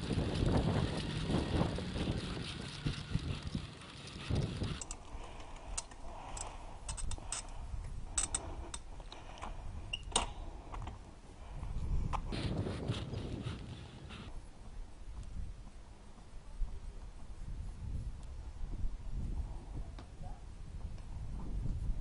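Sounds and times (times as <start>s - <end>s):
bike clicks and rattles: 0.0s - 11.0s, 12.1s - 14.3s
bicycle rolling rumble: 0.0s - 14.8s.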